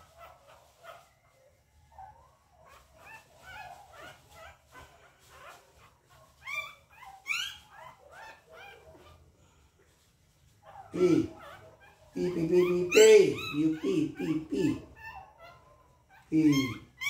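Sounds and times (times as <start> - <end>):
puppy whimpering and squealing: 1.9 - 9.2, 10.7 - 17.0.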